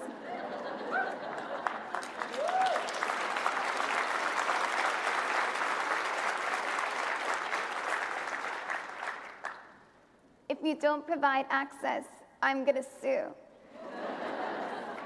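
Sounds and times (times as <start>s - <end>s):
large audience applauding: 0.6s - 9.8s.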